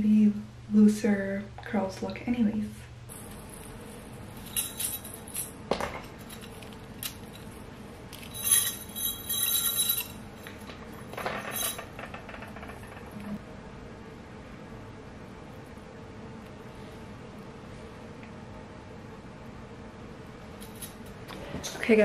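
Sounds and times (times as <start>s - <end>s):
metal bangles clinking: 3.1s - 12.0s, 20.6s - 21.1s.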